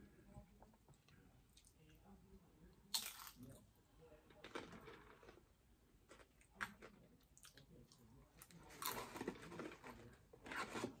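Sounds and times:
food crunching: 2.9 - 3.6, 4.3 - 11.0.

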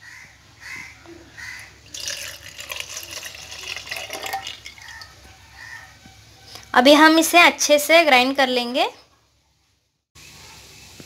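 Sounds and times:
milk pouring and splashing: 1.9 - 5.2.

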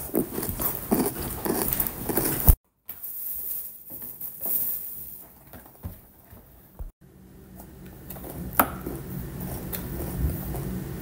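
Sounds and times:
chocolate bar crunching: 0.0 - 2.6.

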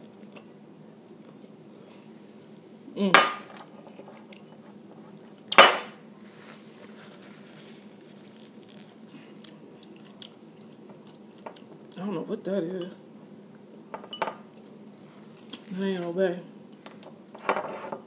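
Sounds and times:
faint room hum: 0.0 - 18.0
tableware knocking down hard: 3.2 - 3.6, 5.5 - 6.0.

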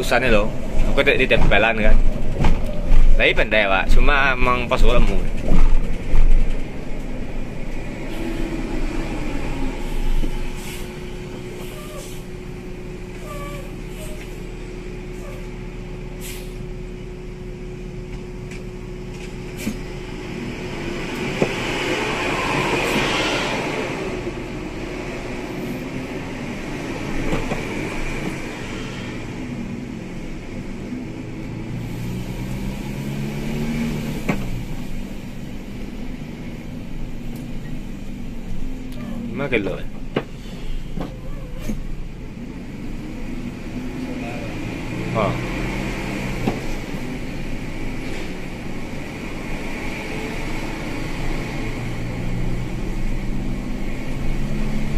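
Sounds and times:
rushing noise: 0.0 - 14.5, 19.4 - 29.7
bus engine hum: 0.0 - 54.9
road noise: 0.0 - 54.9.

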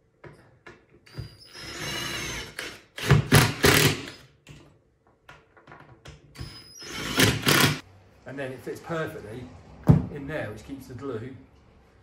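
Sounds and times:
cordless drill driving screws: 1.1 - 4.2, 6.4 - 7.8.

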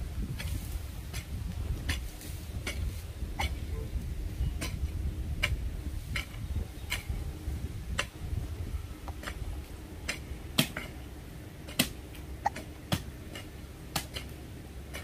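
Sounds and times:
low rumble: 0.0 - 11.5
pickaxe striking dry soil: 11.7 - 15.0.

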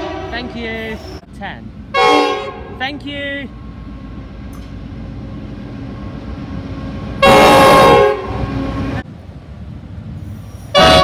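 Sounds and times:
locomotive air horn blast: 0.0 - 1.2, 1.9 - 2.8, 7.0 - 9.0, 10.7 - 11.0
train rumble: 0.0 - 11.0.

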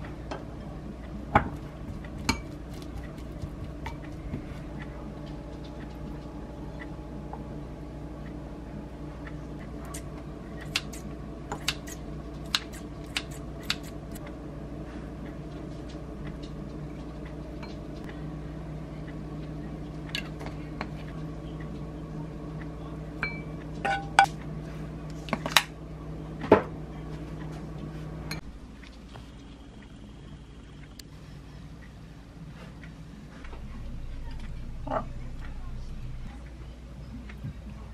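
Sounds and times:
steady low hum: 0.0 - 37.9.

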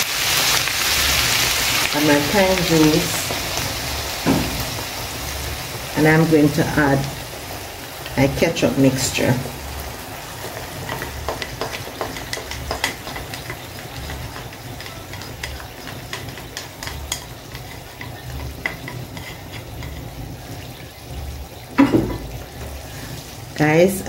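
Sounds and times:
frying pan sizzling: 0.0 - 24.0
spatula clicking and scraping: 10.3 - 20.3.

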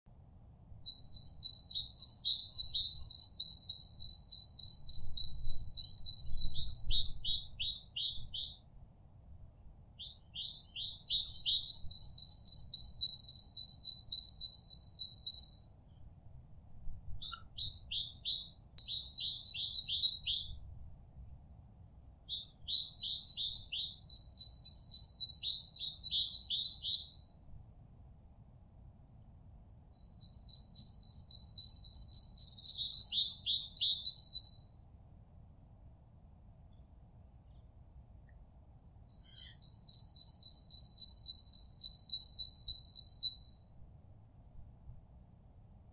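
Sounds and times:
songbird trilling: 0.9 - 8.6, 10.0 - 15.6, 17.2 - 20.6, 22.3 - 27.3, 30.0 - 34.6, 37.4 - 37.7, 39.1 - 43.6.

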